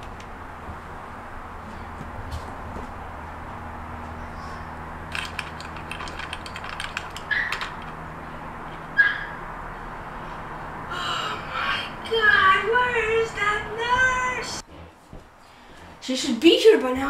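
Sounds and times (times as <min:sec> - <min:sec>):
laptop keys clicking: 0:05.1 - 0:08.0.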